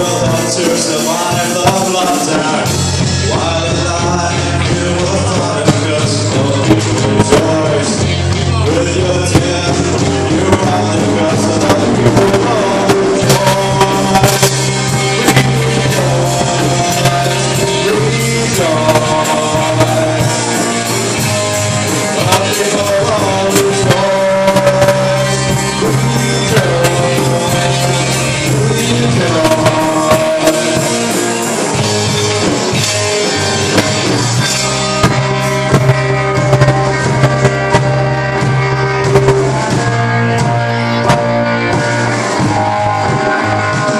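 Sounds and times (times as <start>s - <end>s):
rock band playing live: 0.0s - 43.9s.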